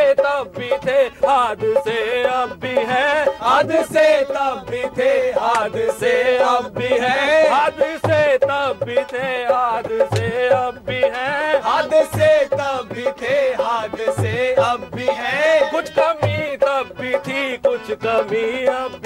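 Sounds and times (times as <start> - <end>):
man singing folk song: 0.0 - 19.0
hand drum beats: 6.8 - 17.5.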